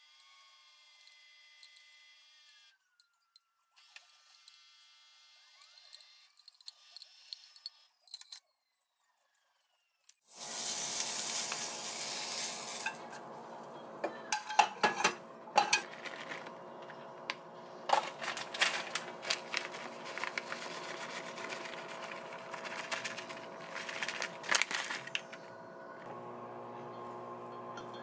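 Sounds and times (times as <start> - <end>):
cheese sprinkled by hand: 10.4 - 12.8, 18.0 - 25.2
spatula scraping: 10.4 - 13.3, 15.6 - 17.0, 17.9 - 25.4.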